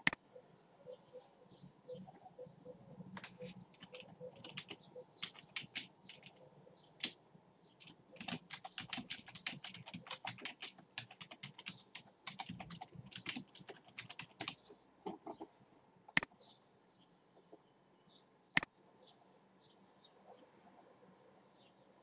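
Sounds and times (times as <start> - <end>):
keyboard typing: 3.2 - 6.4, 7.8 - 15.5.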